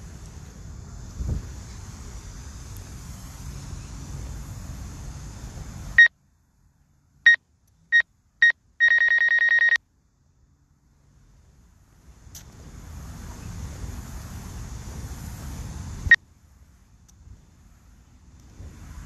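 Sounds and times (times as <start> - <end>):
outdoor background noise: 0.0 - 19.0
high electronic beeps: 8.8 - 9.8.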